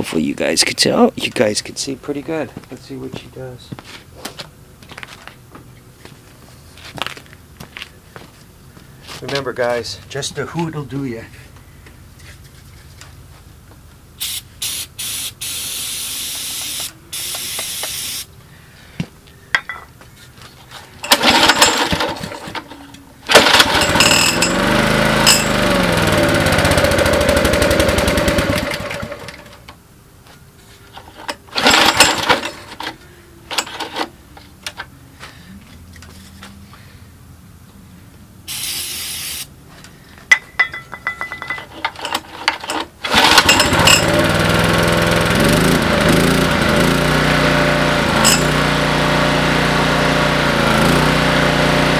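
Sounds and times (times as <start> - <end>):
aerosol spray hisses: 14.2 - 18.3, 38.5 - 39.5
generator engine running: 21.0 - 29.6, 31.5 - 32.8, 43.0 - 51.9
recoil starter pulls: 21.0 - 29.7, 31.0 - 34.1, 41.5 - 51.9.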